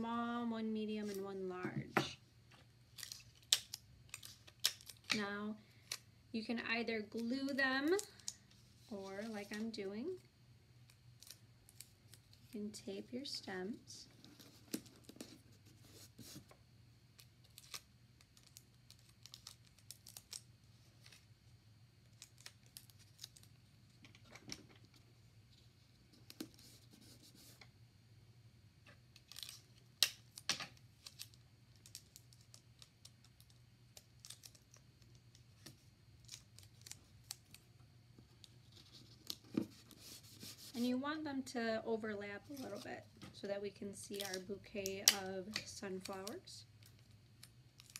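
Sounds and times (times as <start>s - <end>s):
paper and tape rustles and clicks: 17.2s - 21.3s, 29.1s - 40.9s, 42.4s - 43.0s, 44.1s - 47.9s.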